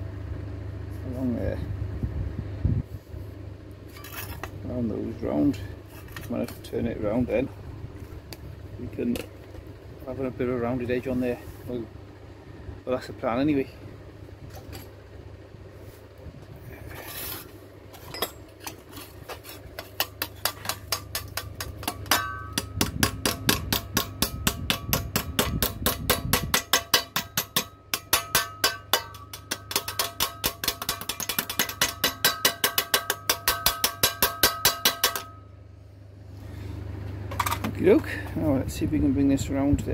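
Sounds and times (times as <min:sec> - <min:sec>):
hammer striking sheet metal: 0:20.0 - 0:35.4.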